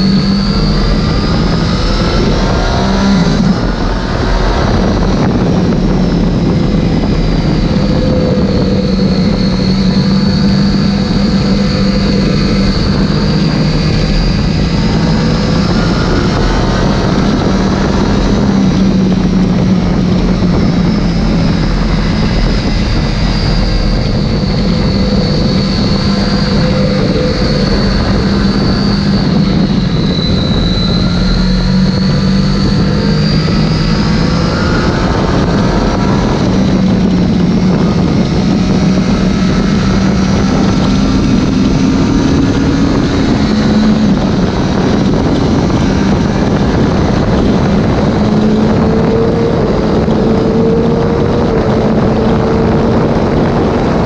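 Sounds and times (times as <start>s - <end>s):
motorcycle engine at high revs: 0.0s - 54.0s
wind noise: 0.0s - 54.0s.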